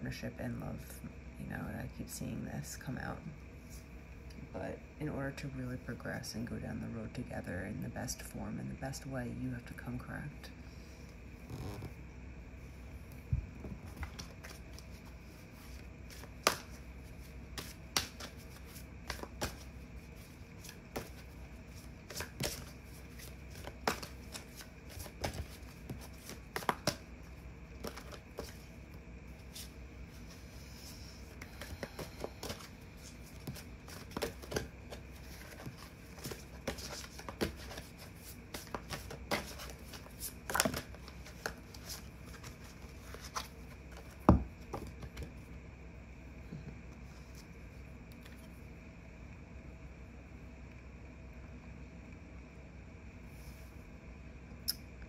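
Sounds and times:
cards being shuffled: 11.4 - 12.0, 13.6 - 45.4.

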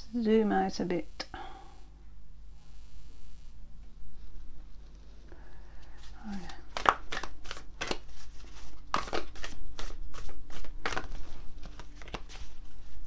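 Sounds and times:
cards being shuffled: 5.8 - 13.0.

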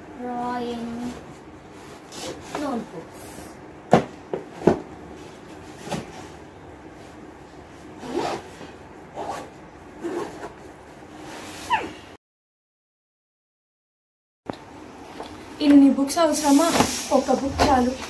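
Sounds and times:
zipper pulled shut: 8.0 - 8.5, 9.2 - 10.5.

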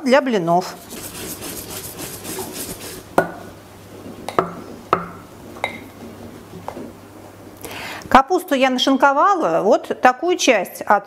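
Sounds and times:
whisk beating batter in pot: 0.6 - 3.2.

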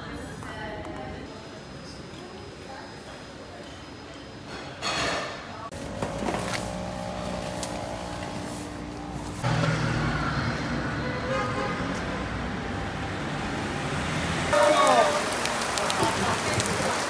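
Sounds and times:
passing motor traffic: 5.7 - 17.0.

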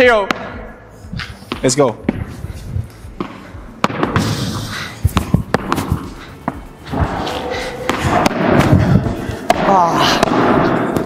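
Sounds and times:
rackets hitting ball: 0.2 - 0.8, 3.1 - 11.0
ball bouncing off court: 5.1 - 6.1.

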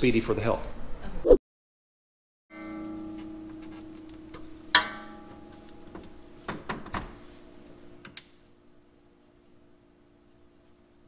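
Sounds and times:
faint steady hum: 2.5 - 11.0.

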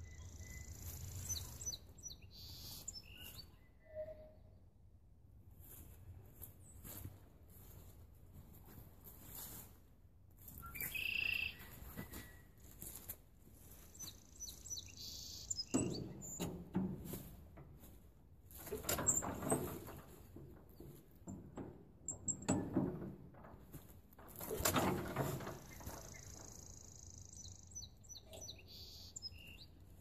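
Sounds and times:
bird chirps: 0.0 - 4.5, 10.6 - 12.5, 13.9 - 16.5, 25.6 - 29.8
tractor engine turning over: 15.7 - 26.9.

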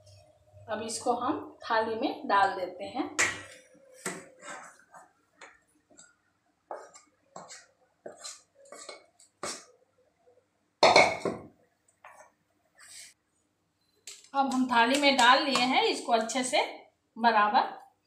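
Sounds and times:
wooden spatula scraping pan: 4.0 - 5.1, 6.7 - 9.6
cookware clattering: 10.8 - 11.5.

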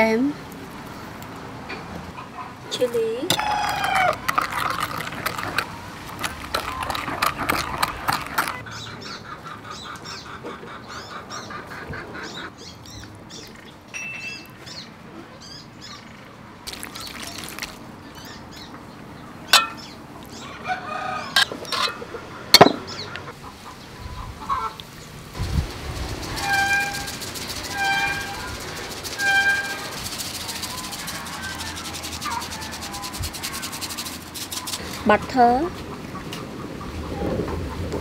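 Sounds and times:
spoon stirring sauce in bowl: 3.3 - 8.6
chickens clucking: 3.3 - 12.5, 19.6 - 35.0
birds calling: 3.3 - 37.8.

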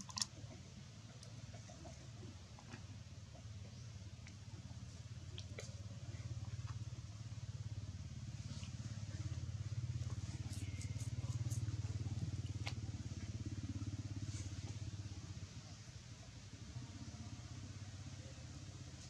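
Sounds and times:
low pulsing engine hum: 0.0 - 19.0.

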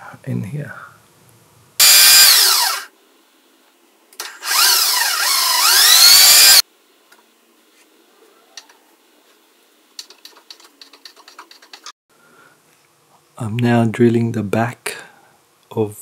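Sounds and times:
power drill whine: 1.8 - 2.9, 4.2 - 6.6.

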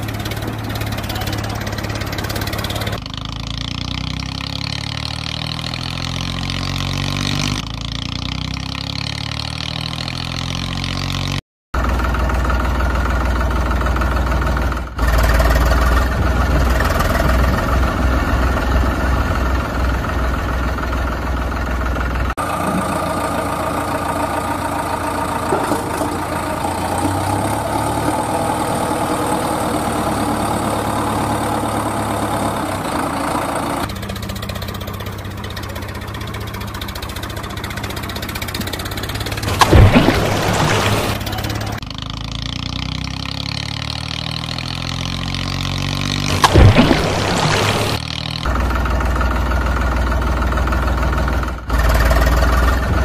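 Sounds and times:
heavy engine idling: 0.0 - 3.8, 11.8 - 42.5, 46.4 - 53.0.

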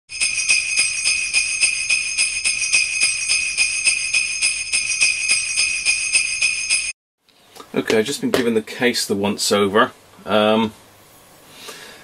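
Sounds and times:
sleigh bells jingling: 0.1 - 7.0.

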